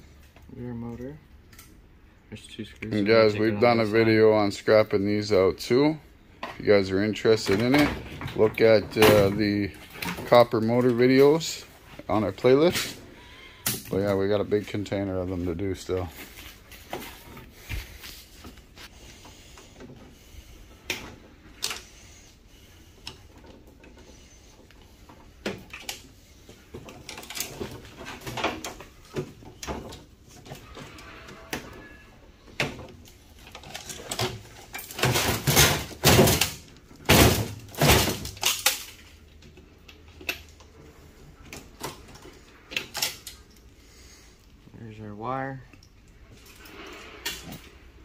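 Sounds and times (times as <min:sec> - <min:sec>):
sheet metal and plastic rattling: 0:06.5 - 0:11.6, 0:26.7 - 0:39.1.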